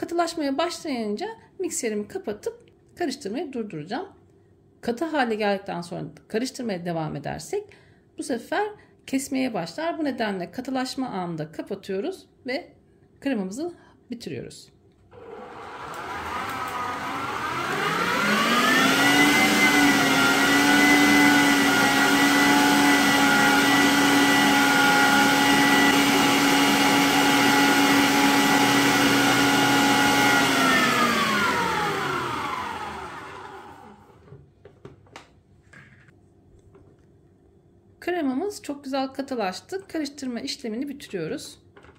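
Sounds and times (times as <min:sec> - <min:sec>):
electric stand mixer whisking: 0:15.2 - 0:34.1.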